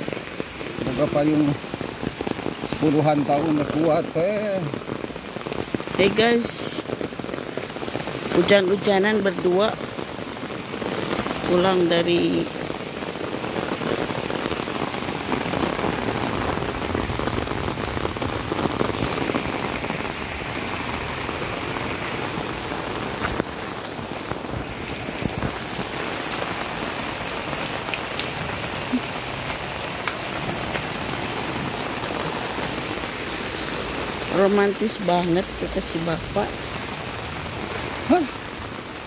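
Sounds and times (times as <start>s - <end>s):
heavy rain on concrete and plants: 0.0s - 39.0s.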